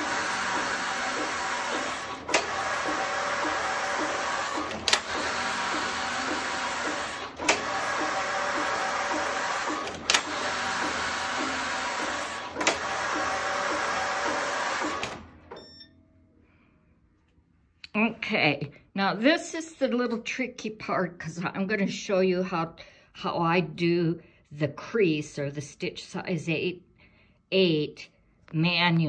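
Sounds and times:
knitting machine carriage running: 0.0s - 15.5s.

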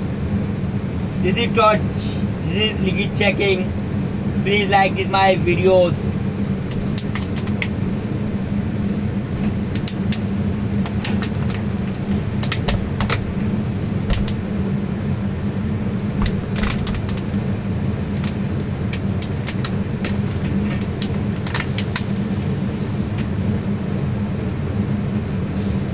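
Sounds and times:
refrigeration unit humming: 0.0s - 25.9s
light clicks and knocks: 10.8s - 13.4s, 14.1s - 14.4s.

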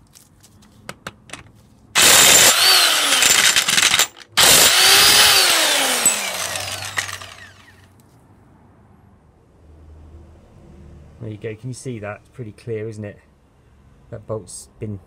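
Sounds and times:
cordless power tool whining: 2.0s - 7.8s.

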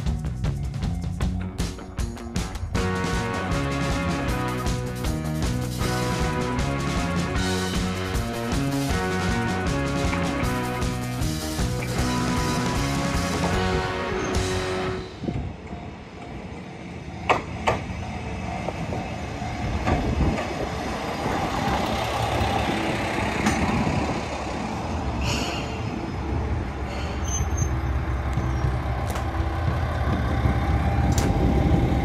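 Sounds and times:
train wheels rumbling on rails: 0.0s - 32.0s
low diesel engine hum: 20.9s - 32.0s.

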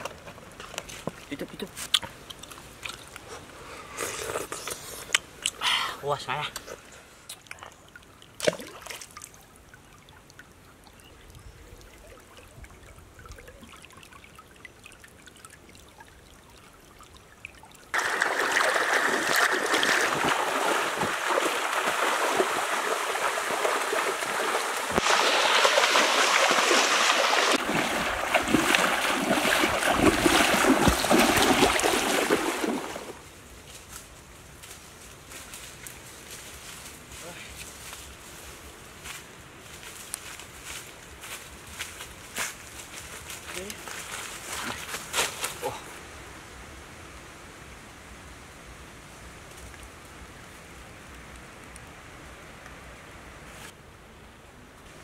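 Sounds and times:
faint trickling stream: 0.0s - 46.2s
people wading through water: 17.9s - 33.2s.

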